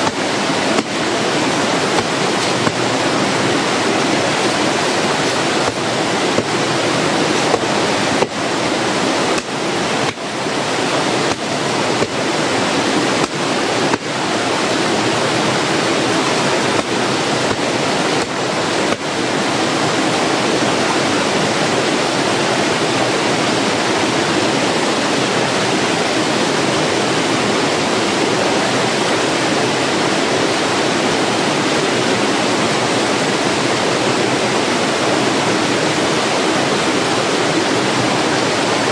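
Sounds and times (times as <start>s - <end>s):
paddle slapping wet clothes: 0.0s - 19.8s
stream cascading over rocks: 0.0s - 38.9s.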